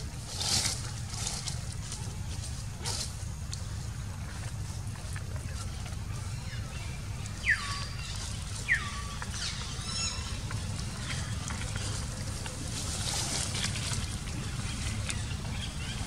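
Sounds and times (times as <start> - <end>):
steady low rumble: 0.0 - 16.0.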